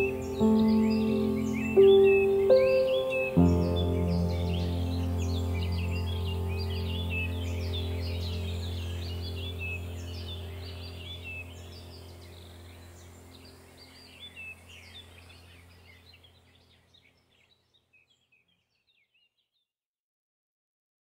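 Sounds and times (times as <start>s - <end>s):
steady low drone: 0.0s - 15.8s.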